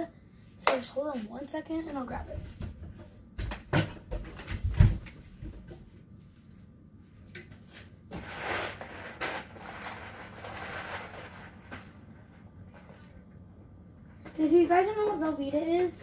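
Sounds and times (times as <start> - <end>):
knocks and rummaging in a cupboard: 1.7 - 6.0.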